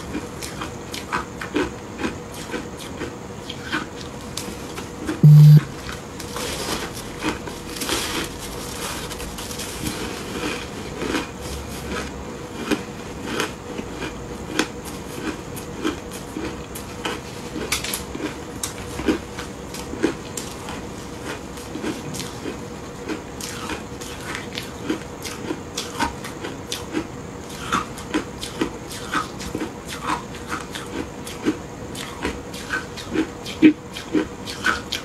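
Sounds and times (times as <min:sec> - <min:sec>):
shaved ice crunching: 0:06.2 - 0:12.0.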